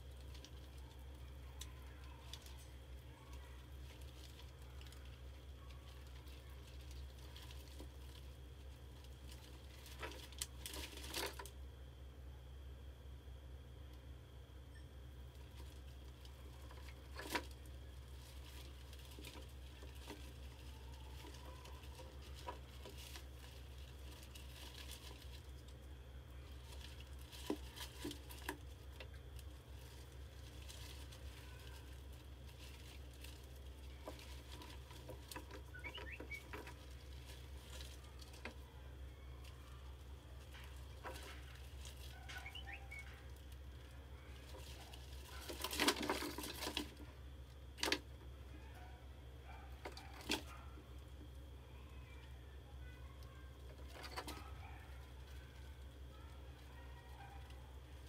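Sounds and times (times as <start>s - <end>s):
mouse claws tapping and scratching: 0.0s - 11.5s, 15.4s - 38.7s, 39.4s - 47.1s
low steady hum: 0.0s - 58.0s
faint high chirps: 14.6s - 15.3s, 35.6s - 37.4s, 42.1s - 43.4s.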